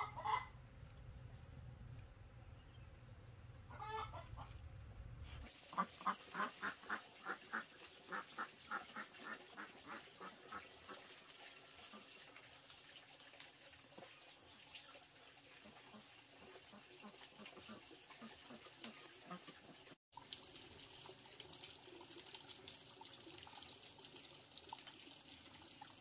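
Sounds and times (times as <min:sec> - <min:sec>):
poultry calling: 0:00.0 - 0:00.6, 0:03.7 - 0:04.6.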